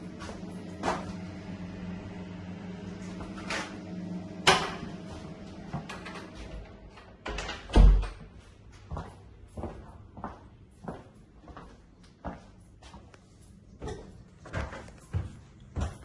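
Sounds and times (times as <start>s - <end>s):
steady hum: 0.0s - 8.7s.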